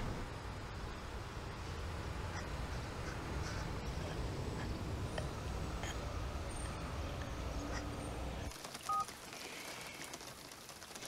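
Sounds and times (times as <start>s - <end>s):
low street rumble: 0.0s - 8.6s.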